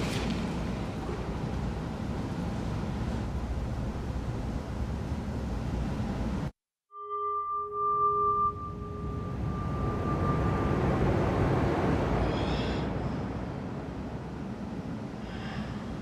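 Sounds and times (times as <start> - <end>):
ringing tone: 6.9 - 11.7
steady rushing noise: 8.6 - 16.0.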